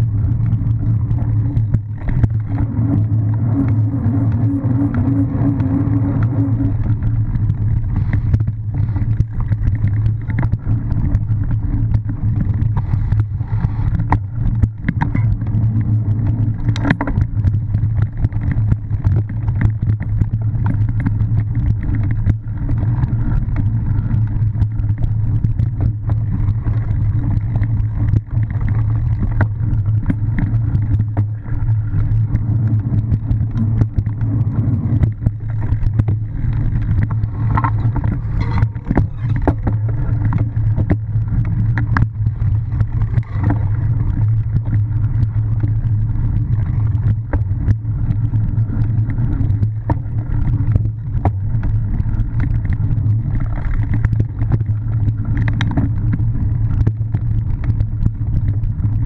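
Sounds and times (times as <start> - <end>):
tyres rolling rumble: 0.0 - 59.0
wind on camera: 0.0 - 59.0
bike knocks and rattles: 13.9 - 45.5.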